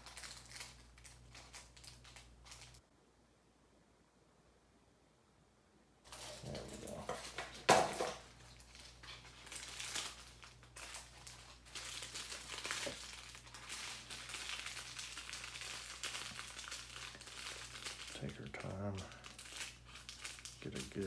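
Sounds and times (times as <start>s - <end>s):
crinkling of plastic bags: 0.0s - 2.8s, 6.1s - 21.0s.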